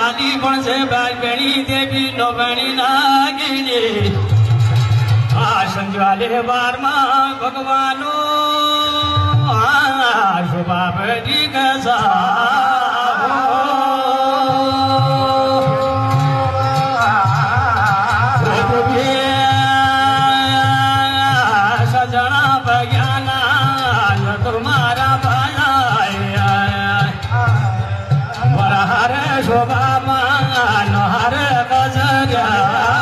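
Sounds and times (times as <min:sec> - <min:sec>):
man singing with vibrato: 0:00.0 - 0:04.5, 0:05.3 - 0:33.0.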